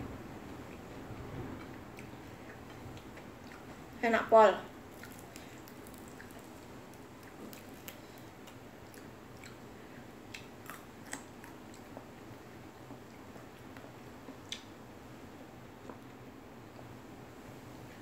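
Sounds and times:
steady low hum: 0.0 - 18.0
chewing and lip-smacking: 1.6 - 3.9, 4.9 - 9.7, 10.3 - 14.7.

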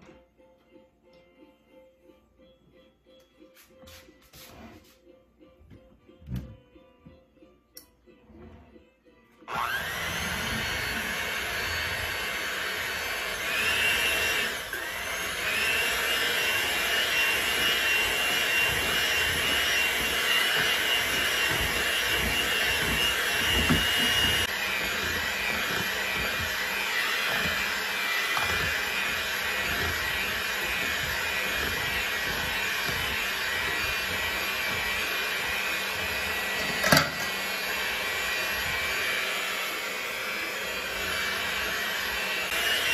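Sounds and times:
electric hand mixer whirring: 9.4 - 42.9.

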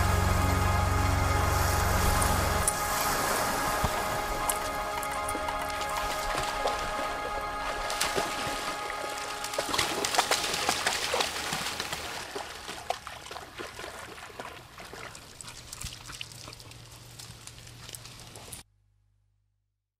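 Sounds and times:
music with held tones: 0.0 - 11.9
rain pattering: 0.0 - 13.4.

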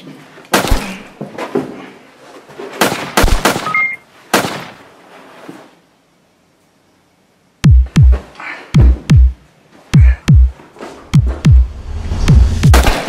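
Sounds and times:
gunshots with echoing tail: 2.8 - 3.8, 12.0 - 13.0.

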